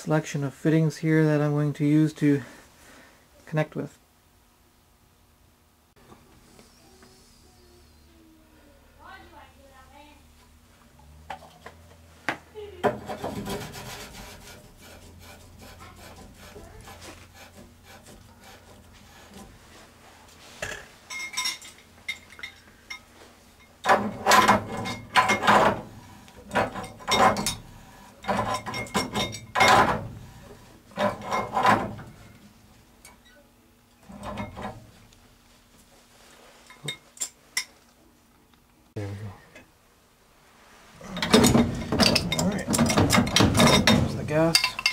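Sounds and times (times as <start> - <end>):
pipe fittings rubbing and scraping: 12.8 - 22.5, 23.8 - 32.5, 34.0 - 35.1, 40.7 - 44.9
rasping metal-on-metal strokes: 13.0 - 19.6.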